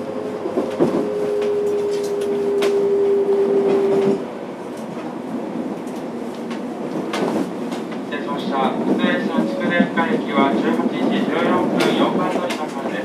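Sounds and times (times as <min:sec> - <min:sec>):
train running noise: 0:00.0 - 0:13.0.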